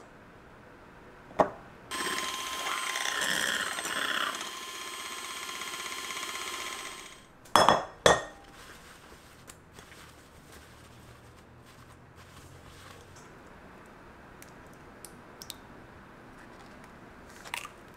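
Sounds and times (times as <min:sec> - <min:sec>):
electric hand mixer whirring: 0:01.9 - 0:07.2.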